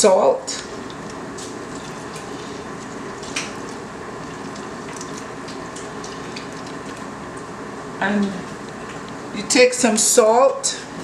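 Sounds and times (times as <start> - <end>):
wet squishing of hands: 0.6 - 7.5.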